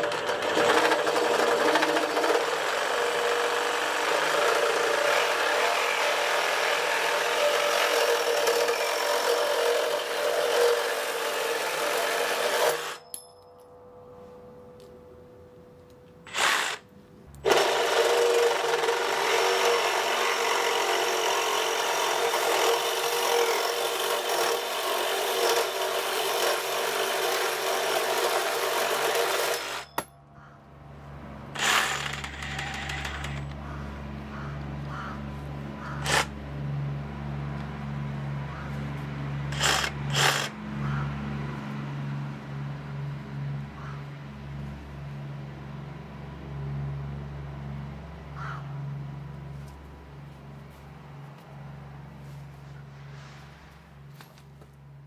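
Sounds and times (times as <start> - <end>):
saw motor winding down: 0.0 - 13.1, 16.3 - 30.0, 31.5 - 33.7, 35.9 - 36.4, 39.5 - 40.6
reciprocating saw cutting metal: 0.0 - 13.2, 16.2 - 30.1, 31.5 - 33.7, 35.8 - 36.4, 39.5 - 40.6.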